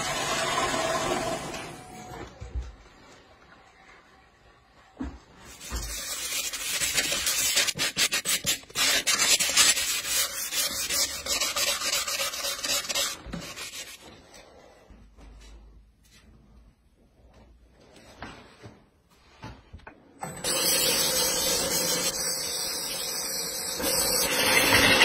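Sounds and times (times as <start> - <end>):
sandpaper rasping on wood: 5.6 - 14.0.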